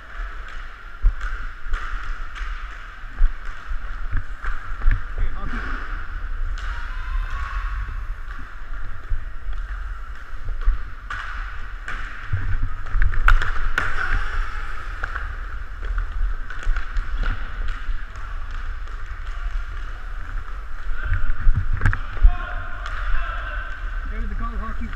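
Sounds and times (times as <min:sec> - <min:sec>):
hockey sticks and puck clacking: 0:00.0 - 0:24.9
skate wheels rolling on plastic floor: 0:07.2 - 0:22.2.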